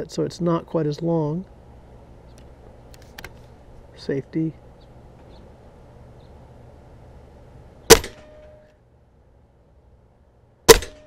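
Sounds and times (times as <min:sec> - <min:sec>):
air rifle shot crack: 0:07.9 - 0:08.5, 0:10.7 - 0:11.0.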